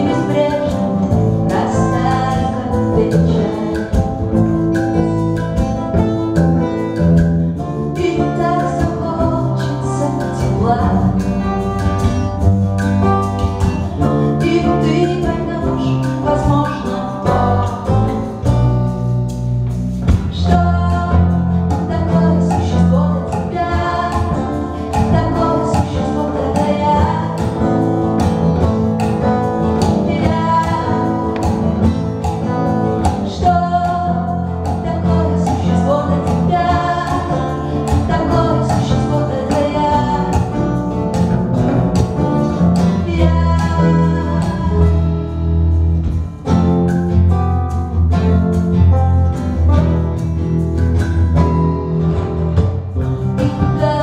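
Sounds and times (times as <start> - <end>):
woman singing: 0.0 - 6.2, 7.6 - 12.4, 13.9 - 19.0, 20.1 - 28.4, 29.2 - 41.3, 42.0 - 45.4, 53.3 - 54.0
live band music: 0.0 - 54.0.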